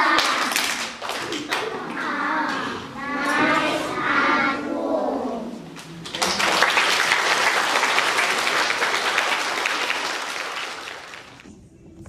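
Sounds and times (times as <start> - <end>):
audience applause: 5.8 - 11.4.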